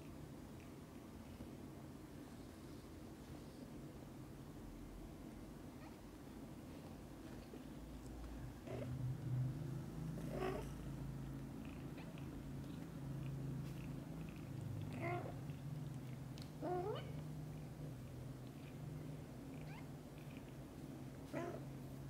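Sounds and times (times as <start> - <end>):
cat purring: 7.3 - 17.1.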